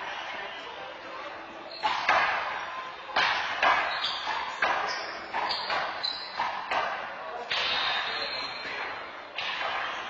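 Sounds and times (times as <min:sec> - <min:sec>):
handball slaps ringing in court: 0:03.2 - 0:10.0.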